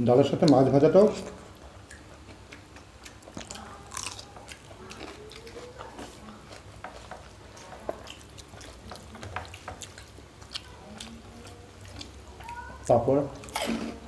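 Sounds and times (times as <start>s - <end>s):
chewing: 0.4s - 14.0s
hands mixing rice on steel plates: 4.3s - 14.0s.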